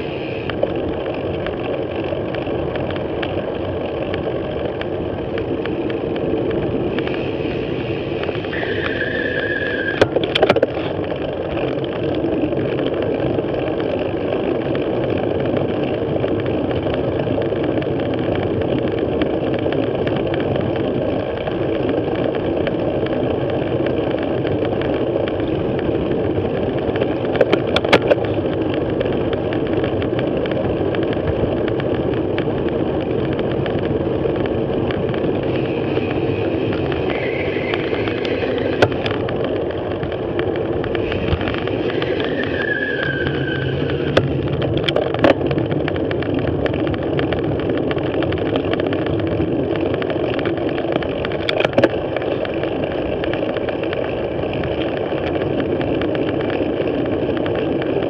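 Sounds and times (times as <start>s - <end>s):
high steady whine: 0.0s - 12.2s, 32.4s - 57.6s
bicycle clicks and rattles: 0.0s - 58.0s
tyre hum on road: 0.0s - 58.0s
wind rushing over microphone: 0.0s - 58.0s.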